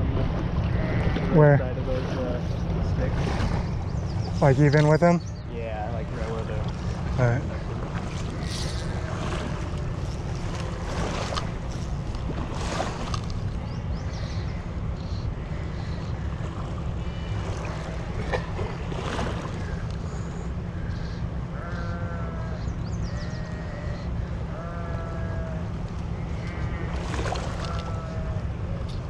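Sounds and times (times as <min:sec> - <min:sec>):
creek water running: 0:00.0 - 0:22.6, 0:24.4 - 0:28.7
wind rumble on microphone: 0:00.0 - 0:29.0
short animal calls: 0:20.8 - 0:28.5.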